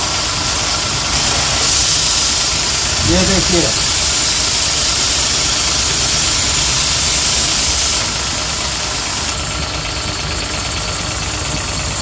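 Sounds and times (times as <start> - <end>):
water jet hissing: 0.0 - 9.5
pump and motor running: 0.0 - 12.0.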